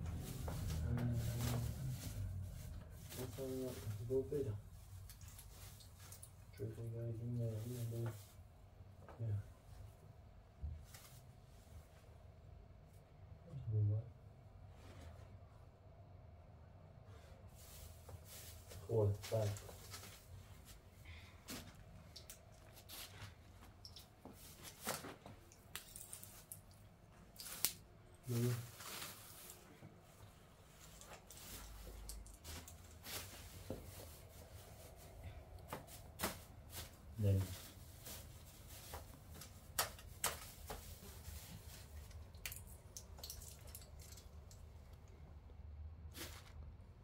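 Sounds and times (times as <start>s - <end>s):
faint low rumble: 0.0s - 5.8s
rustling of handled objects: 0.0s - 6.6s, 17.5s - 45.1s.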